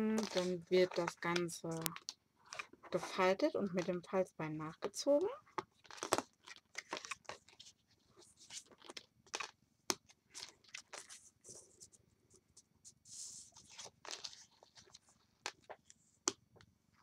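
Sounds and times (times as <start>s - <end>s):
paper rustles taps and clicks: 0.0s - 4.2s, 4.8s - 7.7s, 8.4s - 11.2s, 13.6s - 17.0s.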